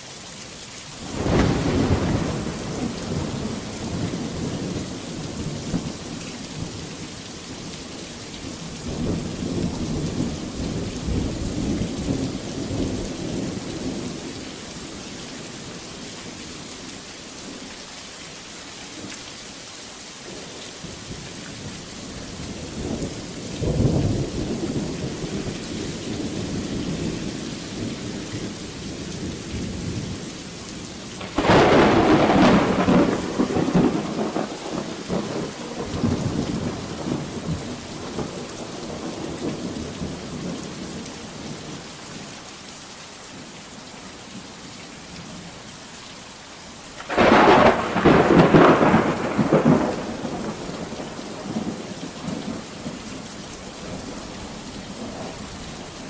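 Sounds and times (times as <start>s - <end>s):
heavy rain: 0.0s - 56.0s
loud thunderclap: 1.0s - 4.8s, 31.2s - 40.2s, 47.0s - 52.6s
rolling thunder: 1.0s - 6.7s, 31.2s - 40.6s, 47.0s - 53.0s.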